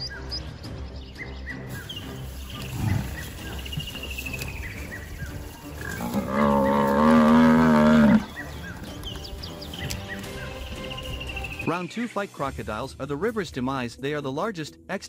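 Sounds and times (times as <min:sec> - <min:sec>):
buffalo bellowing in distress: 0:05.8 - 0:08.4.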